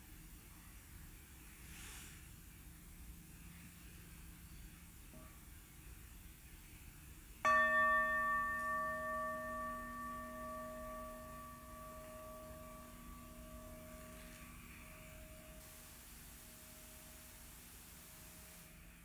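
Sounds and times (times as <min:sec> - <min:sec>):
meditation bell ringing: 0:07.4 - 0:15.6.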